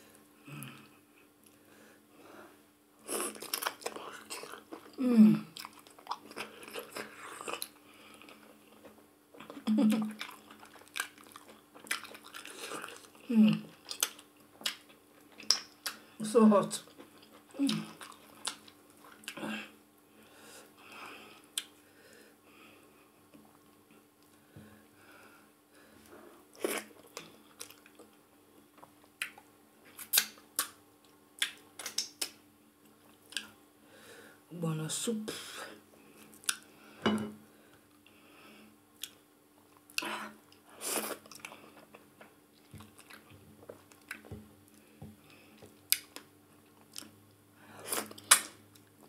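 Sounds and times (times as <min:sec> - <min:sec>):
wet eating sounds: 0:03.1 - 0:16.1, 0:16.8 - 0:19.4, 0:39.0 - 0:47.2, 0:47.8 - 0:48.9.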